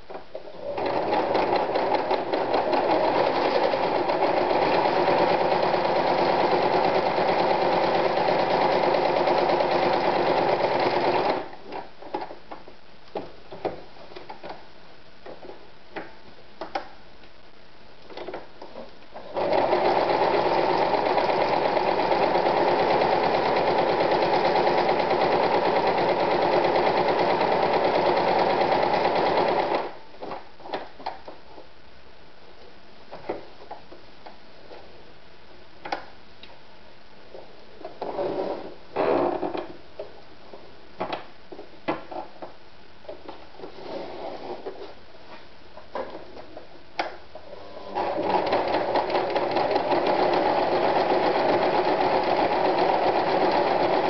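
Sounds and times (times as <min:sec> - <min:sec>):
electric sewing machine sewing: 0:00.6 - 0:11.5, 0:19.2 - 0:30.0, 0:47.7 - 0:54.0.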